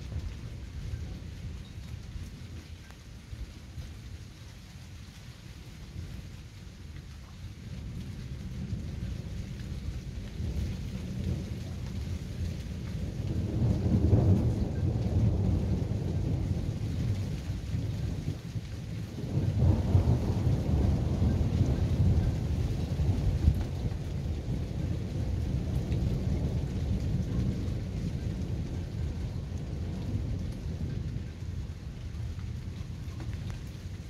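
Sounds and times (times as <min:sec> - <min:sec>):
rolling thunder: 0:07.7 - 0:34.0.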